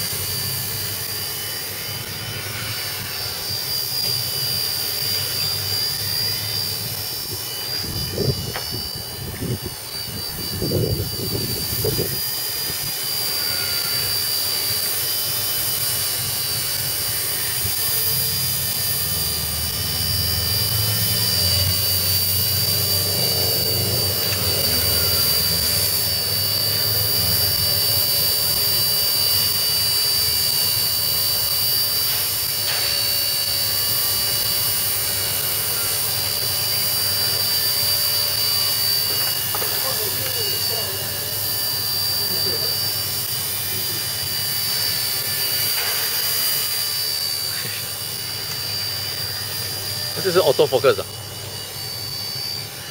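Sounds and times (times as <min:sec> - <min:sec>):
rc helicopter motor whine: 0:00.0 - 0:52.9.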